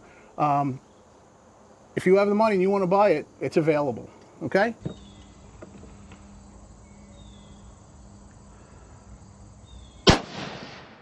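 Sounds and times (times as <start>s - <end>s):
insects: 0.0s - 11.0s
rifle shot: 10.0s - 11.0s.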